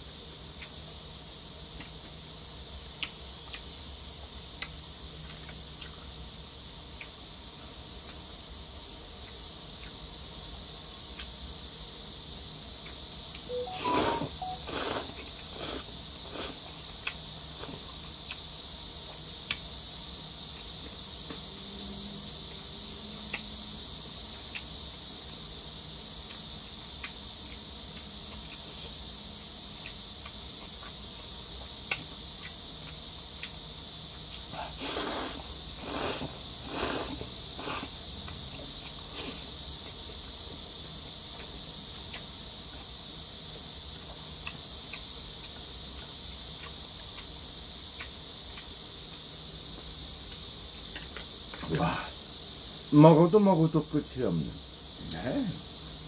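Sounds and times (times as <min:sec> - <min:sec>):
steady high hiss: 0:00.0 - 0:56.0
loud noodle slurps: 0:14.0 - 0:16.6, 0:34.7 - 0:37.9.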